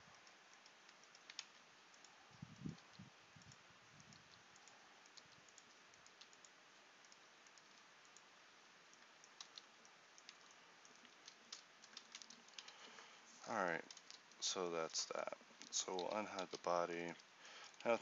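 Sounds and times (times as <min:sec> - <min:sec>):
steady low hiss: 0:00.0 - 0:18.0
keyboard and mouse clicks: 0:00.2 - 0:07.8, 0:09.0 - 0:12.9, 0:15.1 - 0:16.6.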